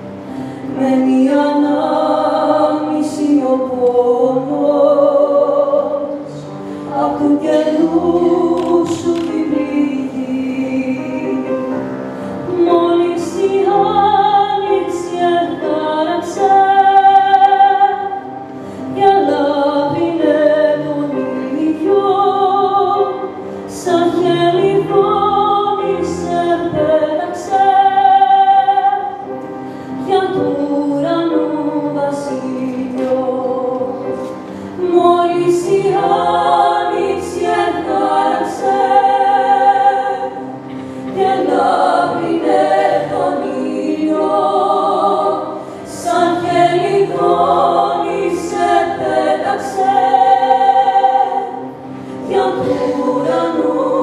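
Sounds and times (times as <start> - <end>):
grand piano: 0.0 - 54.0
women singing: 0.7 - 29.4, 30.0 - 54.0.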